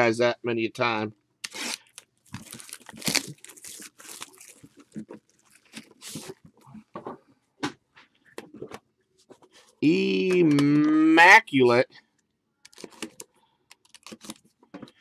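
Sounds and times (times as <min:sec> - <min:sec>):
plastic shrink wrap crinkling: 0:01.5 - 0:06.6, 0:12.7 - 0:14.6.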